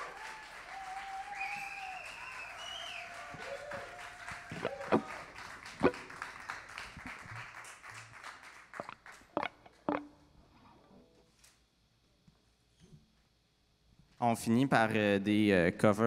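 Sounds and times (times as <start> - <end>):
people cheering: 0.0 - 9.0
audience applause: 0.0 - 9.4.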